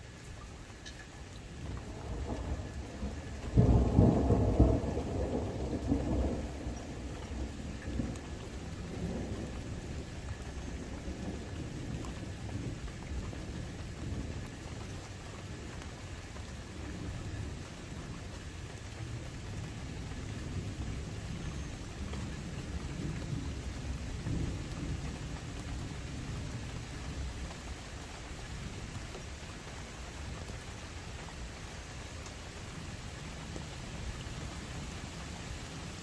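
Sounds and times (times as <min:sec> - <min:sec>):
steady rain: 0:00.0 - 0:36.0
distant thunder rumble: 0:01.4 - 0:29.5.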